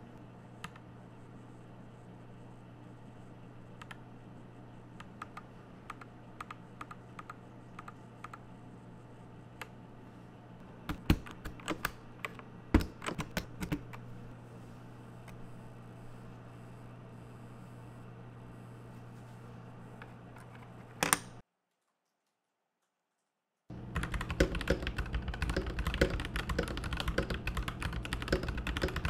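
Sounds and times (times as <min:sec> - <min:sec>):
keycaps pulled off switches: 0:24.0 - 0:29.0.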